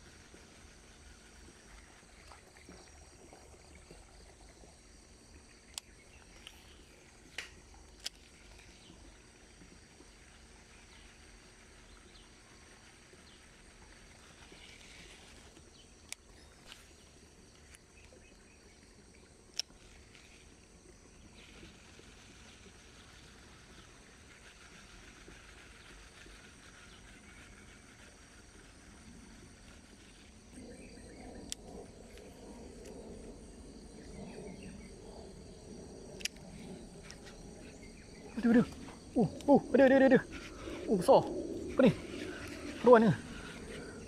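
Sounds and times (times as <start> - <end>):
faint steady hiss: 0.0 - 44.0
thin high steady tones: 36.2 - 44.0.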